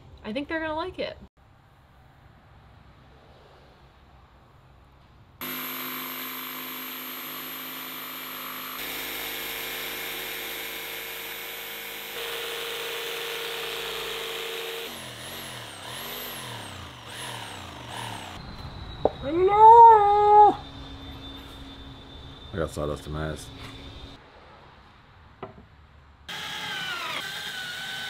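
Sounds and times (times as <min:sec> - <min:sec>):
jigsaw cutting plywood: 0:05.4 - 0:18.4, 0:26.3 - 0:28.0.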